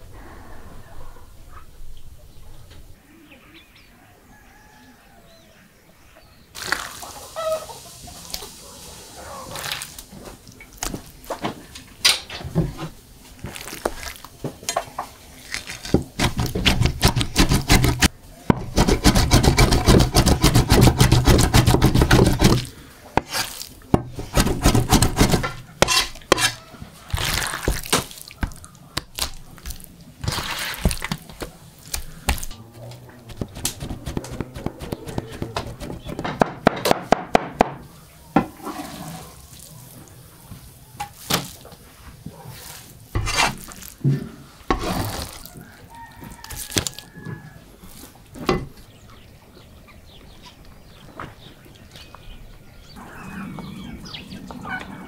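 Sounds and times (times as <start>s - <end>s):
raw meat squelching and slapping: 13.3s - 14.4s, 19.6s - 32.6s, 33.3s - 36.1s, 44.8s - 47.2s.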